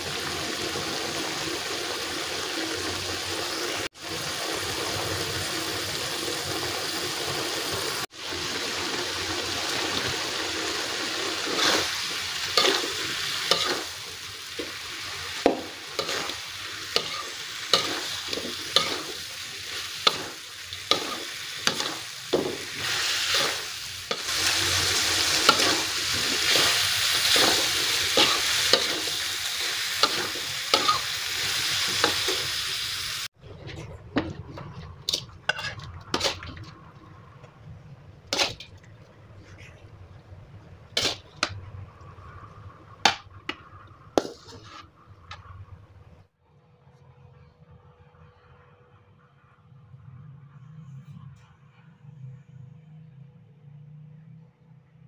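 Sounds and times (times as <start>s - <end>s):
stir-fry sizzling in a wok: 0.0s - 33.4s, 34.2s - 37.0s, 38.2s - 38.8s, 40.4s - 46.2s
metal spatula scraping a pan: 11.4s - 32.6s, 33.4s - 36.8s, 38.3s - 40.0s, 40.9s - 45.7s.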